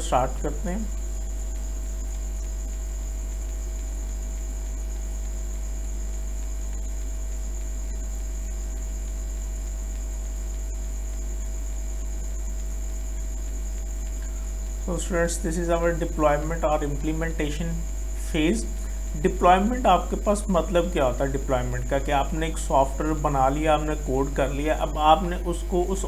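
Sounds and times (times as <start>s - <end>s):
electrical mains hum: 0.0s - 26.0s
high-pitched whine: 14.2s - 26.0s.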